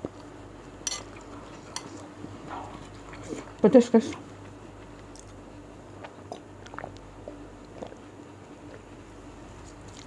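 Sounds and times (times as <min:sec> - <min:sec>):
low steady hum: 0:00.0 - 0:10.0
person sipping and gulping water: 0:06.0 - 0:08.1.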